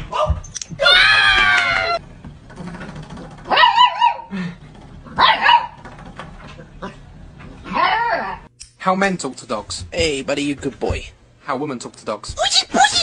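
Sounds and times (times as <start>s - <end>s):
puppy barking: 3.5s - 4.3s, 5.2s - 5.8s.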